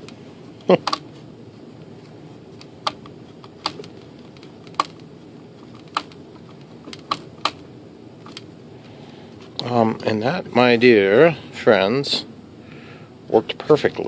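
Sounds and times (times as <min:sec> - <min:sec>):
sharp clicks and taps: 0:00.0 - 0:01.0, 0:02.6 - 0:07.6
steady low hum: 0:00.0 - 0:14.0.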